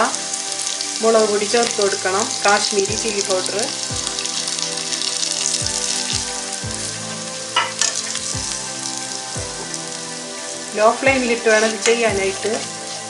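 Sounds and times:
hot oil sizzling: 0.0s - 13.0s.

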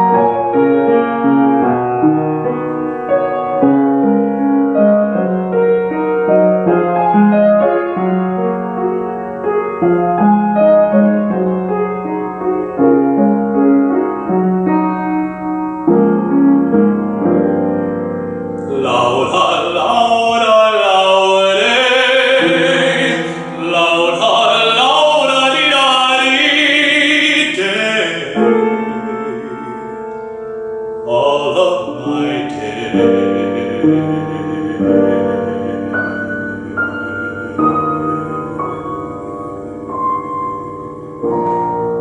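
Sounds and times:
piano playing: 0.0s - 42.0s
man singing with vibrato: 18.6s - 30.4s, 31.0s - 39.6s.

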